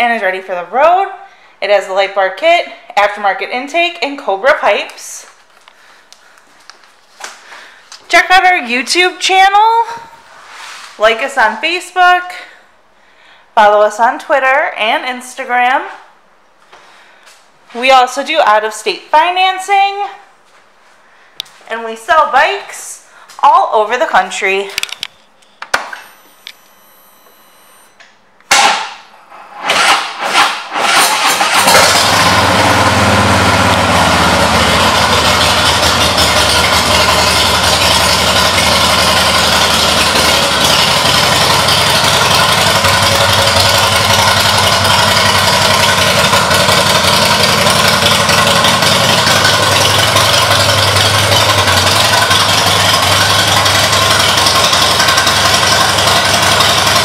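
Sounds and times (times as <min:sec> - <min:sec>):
motorcycle engine cranking: 0:29.6 - 0:57.0
motorcycle engine idling: 0:31.7 - 0:57.0.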